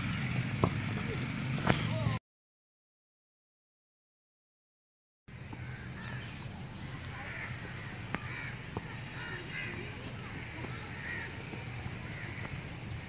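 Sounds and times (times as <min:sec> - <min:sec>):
low outdoor rumble: 0:00.0 - 0:02.2, 0:05.3 - 0:13.0
ball being kicked: 0:00.6 - 0:01.0
faint children's voices: 0:06.1 - 0:13.0.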